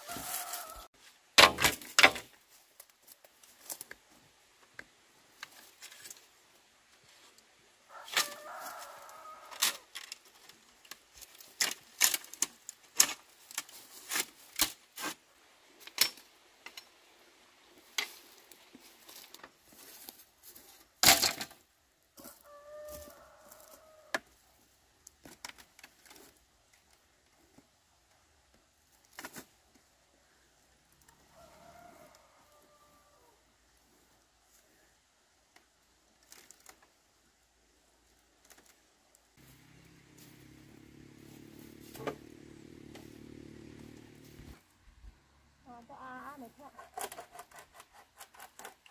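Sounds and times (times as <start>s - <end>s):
rooster crowing: 0.0s - 0.9s, 7.9s - 9.9s, 22.2s - 24.2s, 31.1s - 33.4s.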